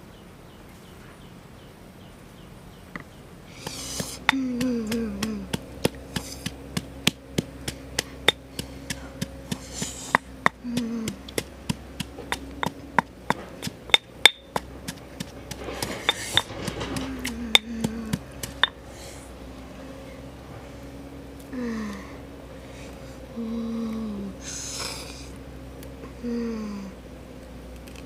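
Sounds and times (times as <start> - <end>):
stone pestle pounding in mortar: 3.6 - 18.8.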